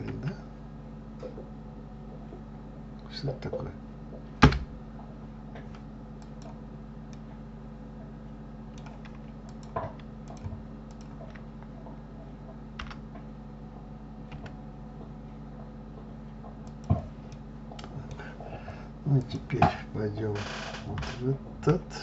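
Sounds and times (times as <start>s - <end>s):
steady low hum: 0.0s - 22.0s
computer keyboard keys clicking: 8.8s - 11.5s, 12.8s - 13.0s, 14.3s - 14.6s.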